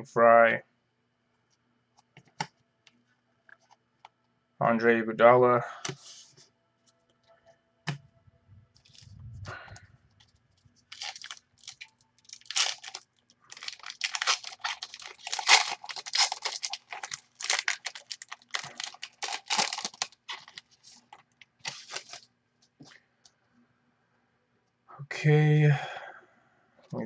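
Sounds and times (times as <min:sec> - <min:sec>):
foil wrapper tearing and crinkling: 0:10.9 - 0:22.2.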